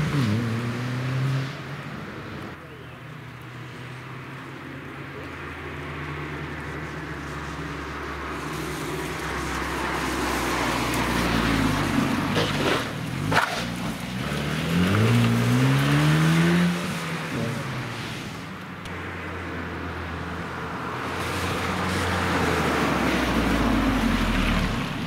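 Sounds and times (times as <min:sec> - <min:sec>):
rally car engine: 0:00.0 - 0:02.6, 0:05.0 - 0:19.2
sharp crack: 0:12.3 - 0:14.4.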